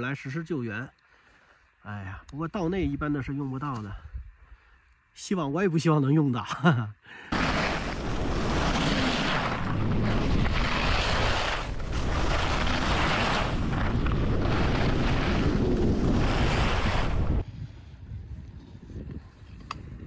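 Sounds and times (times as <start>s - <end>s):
skis hissing and scraping on snow: 7.3s - 18.1s
wind rushing over microphone: 7.3s - 20.0s.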